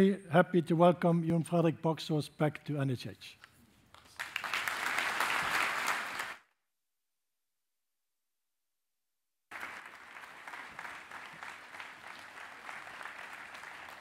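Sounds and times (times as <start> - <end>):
audience applause: 4.1 - 6.4, 9.5 - 14.0.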